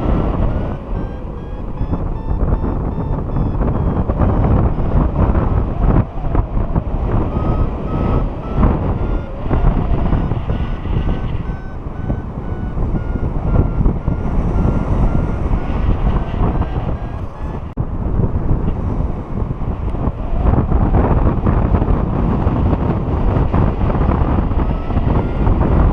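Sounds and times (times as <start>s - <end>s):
short electronic beeps: 0.0s - 5.6s, 7.2s - 17.7s, 24.6s - 25.9s
wind buffeting microphone: 0.0s - 25.9s.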